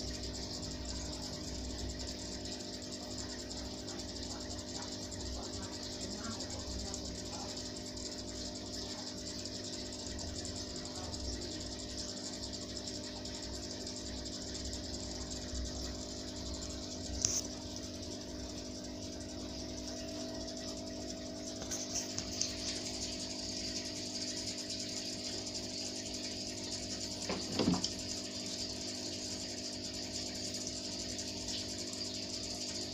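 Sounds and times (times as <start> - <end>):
aquarium pump humming: 0.0 - 32.9
small ticks: 0.0 - 32.9.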